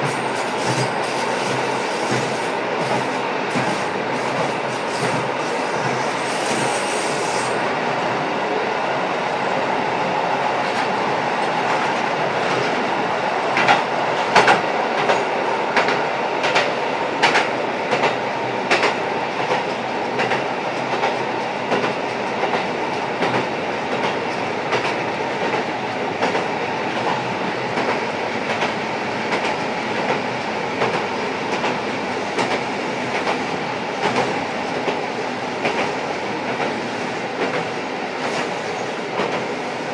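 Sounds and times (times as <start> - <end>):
rail-joint clicks: 0.0 - 6.7, 13.5 - 30.2, 30.8 - 35.0, 35.6 - 36.8, 37.4 - 39.6
diesel railcar engine and wheel noise: 0.0 - 39.9.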